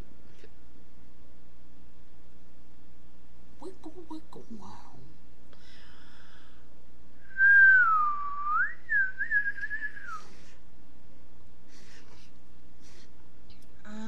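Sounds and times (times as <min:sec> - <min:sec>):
person whistling: 0:07.2 - 0:10.3.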